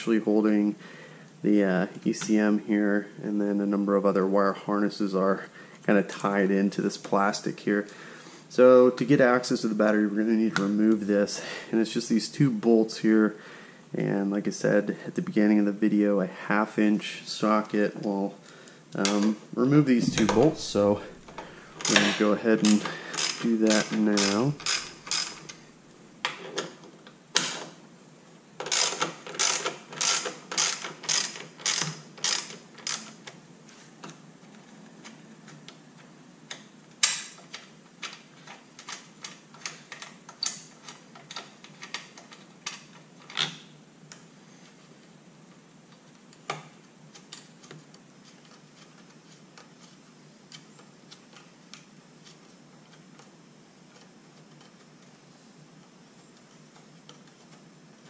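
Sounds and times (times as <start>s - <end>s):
socket ratchet clicking: 22.8s - 25.6s, 28.6s - 33.1s.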